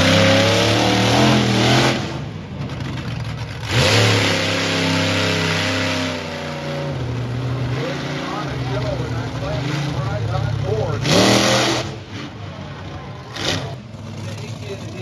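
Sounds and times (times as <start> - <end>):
monster truck engine revving: 0.0 - 15.0.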